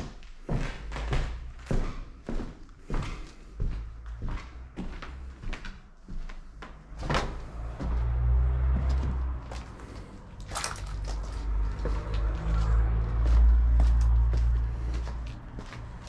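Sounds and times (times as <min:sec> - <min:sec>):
low rumble: 0:06.8 - 0:16.0.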